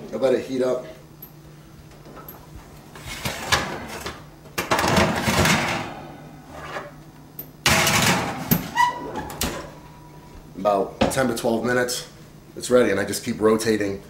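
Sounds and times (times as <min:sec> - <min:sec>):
oven door opening: 0:03.1 - 0:07.0, 0:07.6 - 0:09.8.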